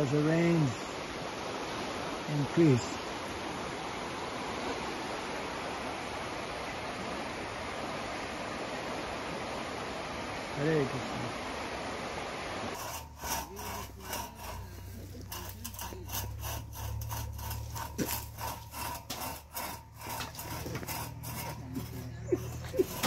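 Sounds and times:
hand saw cutting wood: 12.7s - 23.0s.

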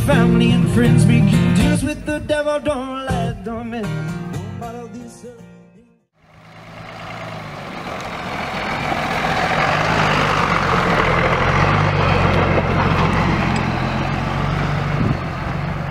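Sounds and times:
bus engine driving past: 6.2s - 15.9s.

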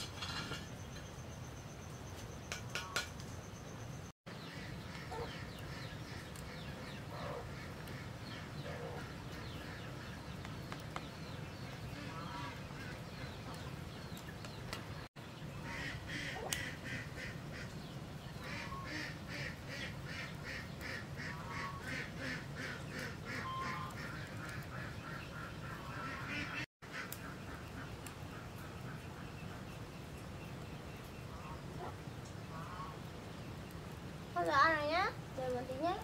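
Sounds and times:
ducks quacking: 4.3s - 10.4s, 11.2s - 13.8s, 15.6s - 29.8s.

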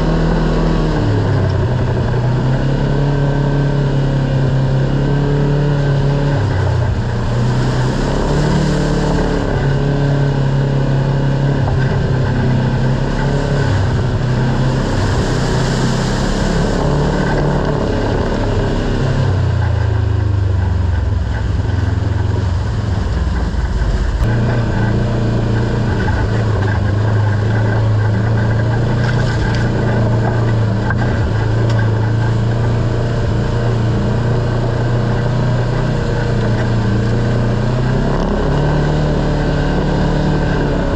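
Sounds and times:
vehicle engine running: 0.0s - 40.9s.

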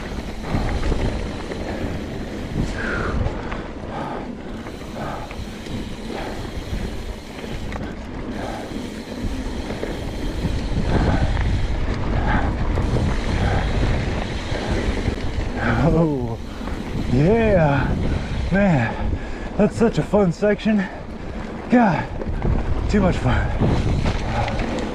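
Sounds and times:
wind noise on microphone: 0.0s - 20.2s, 21.0s - 24.9s
bike tyres rolling on dirt: 0.0s - 24.9s
bike knocks and rattles: 22.2s - 24.9s.

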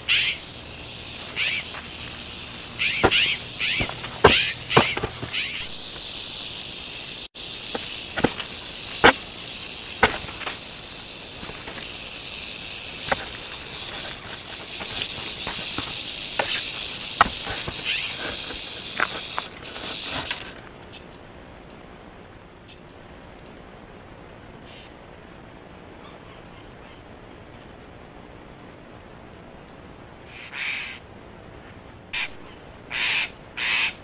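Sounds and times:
rustling in dry leaves: 0.0s - 20.8s.

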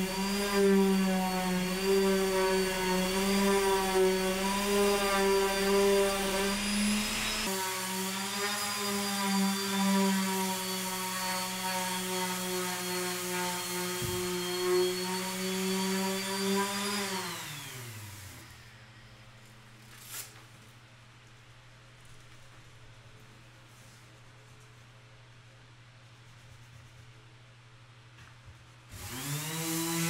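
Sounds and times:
orbital sander whining on wood: 0.0s - 18.6s, 29.0s - 30.0s.

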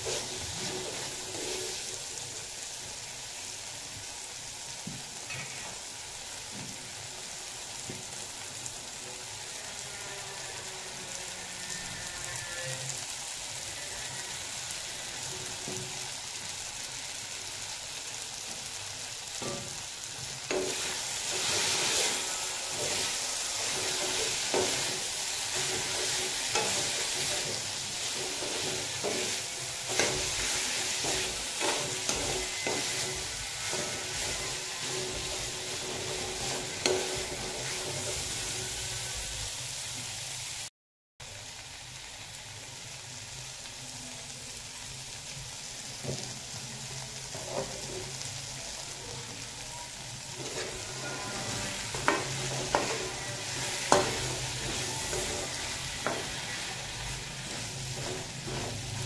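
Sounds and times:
vegetables sizzling in oil: 0.0s - 59.0s
metal spatula scraping pan: 19.4s - 39.2s, 47.3s - 48.3s, 50.3s - 59.0s.

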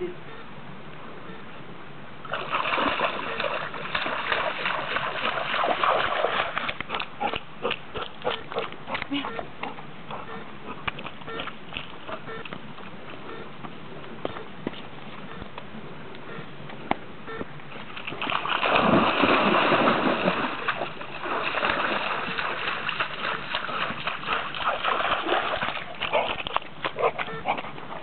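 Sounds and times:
dog splashing in water: 2.3s - 9.0s, 18.0s - 27.7s.

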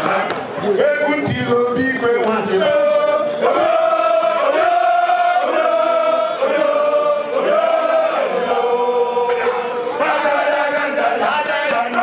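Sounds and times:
group of voices chanting: 2.6s - 12.0s.

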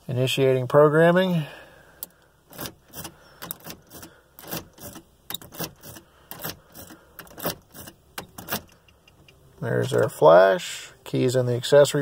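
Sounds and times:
key clicking in ignition lock: 2.5s - 9.4s.

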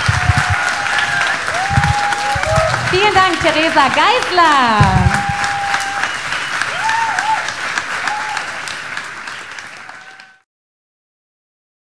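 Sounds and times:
voices: 0.0s - 6.0s
audience applauding: 0.0s - 10.5s.

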